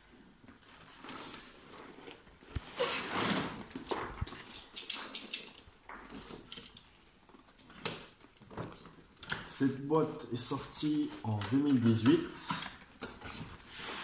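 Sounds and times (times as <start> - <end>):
cardboard scraping and rustling: 0.6 - 4.7.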